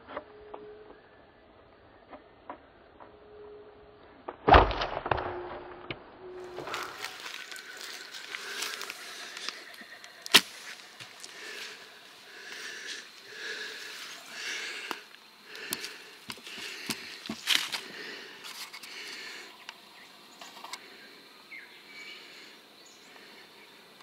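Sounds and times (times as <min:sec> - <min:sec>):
person breathing hard: 0:06.7 - 0:19.6, 0:20.8 - 0:23.7.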